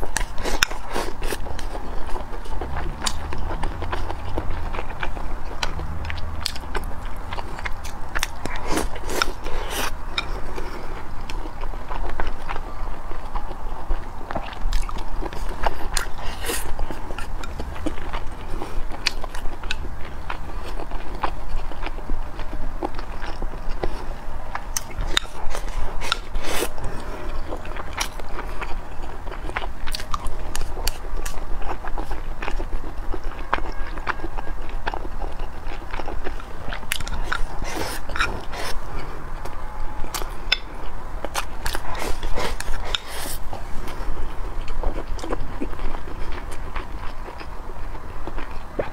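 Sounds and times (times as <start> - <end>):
chewing and mouth sounds: 0.0 - 48.9.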